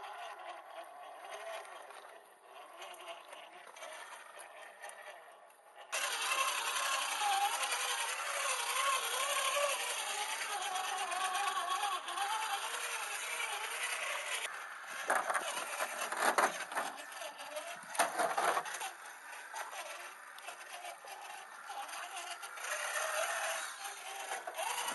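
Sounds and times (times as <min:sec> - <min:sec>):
electric motor and gears whining: 0:00.0 - 0:24.9
tyres scraping on rock: 0:07.2 - 0:24.9.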